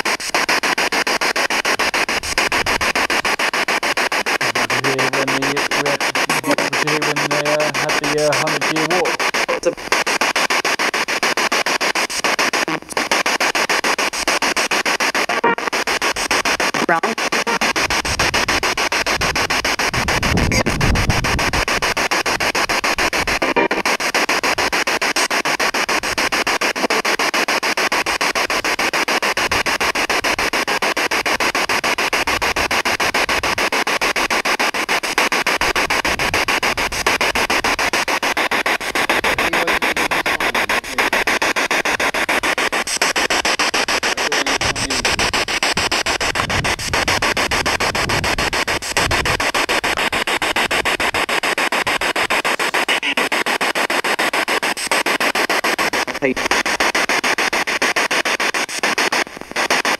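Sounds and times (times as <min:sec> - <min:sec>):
chopped radio static hiss: 0:00.0 - 0:59.9.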